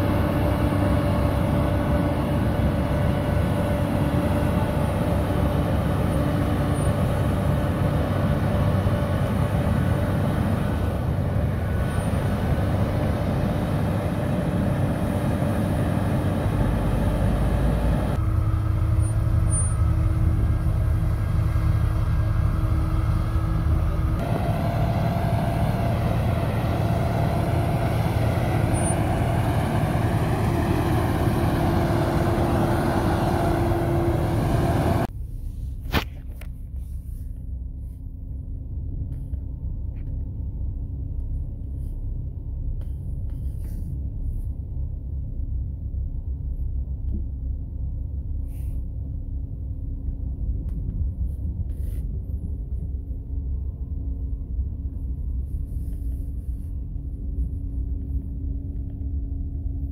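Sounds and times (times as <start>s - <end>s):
car engine and tyres rumbling: 0.0s - 59.9s
snowblower engine running hard: 24.2s - 35.1s.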